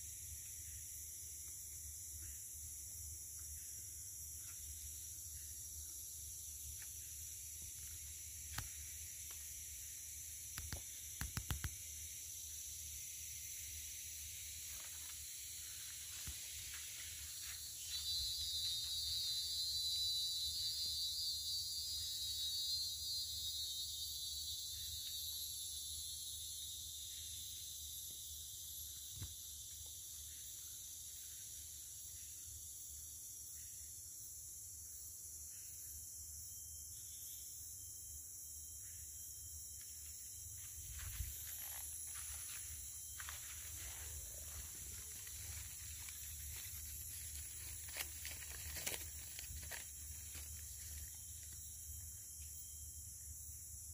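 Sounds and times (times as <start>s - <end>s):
high buzzing insect call: 0.0s - 53.9s
insects hissing: 0.0s - 53.9s
sharp clicks: 10.6s - 11.8s.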